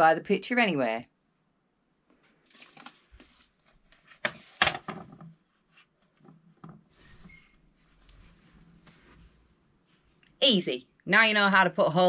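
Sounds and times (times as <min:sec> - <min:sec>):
frame scraping against wall: 0:06.2 - 0:08.4.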